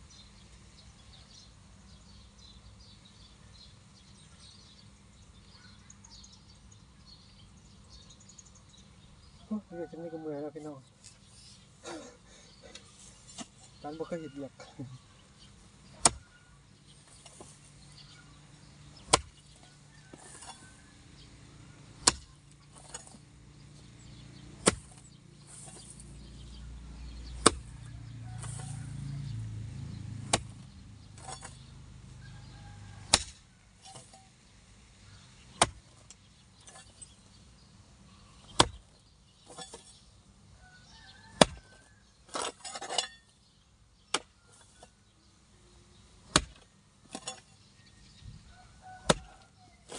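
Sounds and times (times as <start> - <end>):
hoe chopping dry ground: 12.6 - 14.2, 15.5 - 34.4, 35.1 - 37.4, 38.4 - 40.1, 41.1 - 45.1, 46.0 - 47.7, 48.8 - 49.9.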